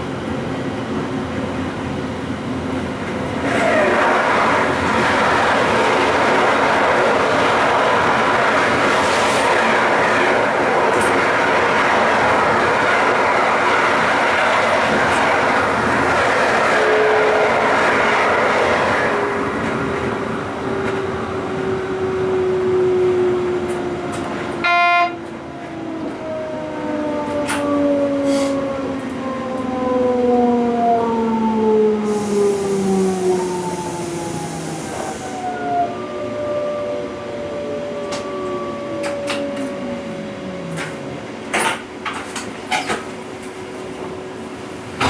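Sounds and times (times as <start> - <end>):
train horn toot: 16.7 - 17.8, 24.6 - 25.3.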